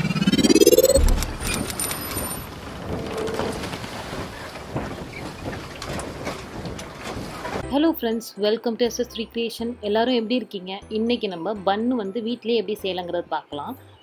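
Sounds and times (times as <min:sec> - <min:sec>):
low boom: 0:00.0 - 0:01.7
rising sweep with sparkling glide: 0:00.0 - 0:01.7.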